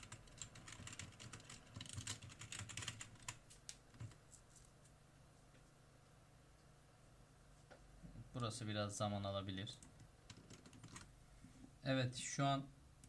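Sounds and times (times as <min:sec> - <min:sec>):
typing on keyboard: 0:00.0 - 0:04.2, 0:09.8 - 0:11.1.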